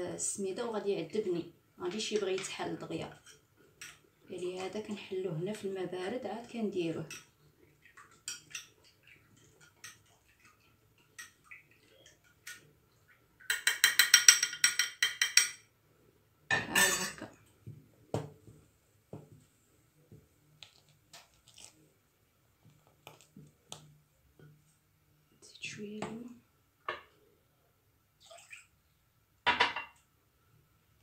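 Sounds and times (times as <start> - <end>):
spoon clatter: 13.5 - 15.6
spoon clinking against ceramic bowl: 13.5 - 15.6.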